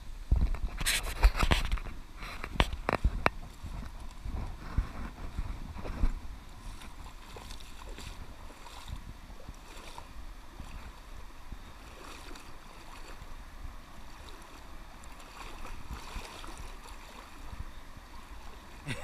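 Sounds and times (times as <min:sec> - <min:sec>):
river water flowing and lapping: 0:00.0 - 0:19.0
steady low rumble: 0:01.8 - 0:19.0
small splashes: 0:05.2 - 0:19.0.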